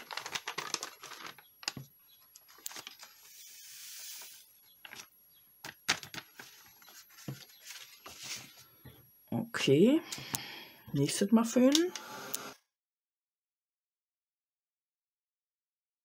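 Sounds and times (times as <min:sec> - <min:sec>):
paper creasing and handling: 0:00.0 - 0:05.1, 0:05.9 - 0:08.7
powder sliding off paper hiss: 0:03.0 - 0:04.5.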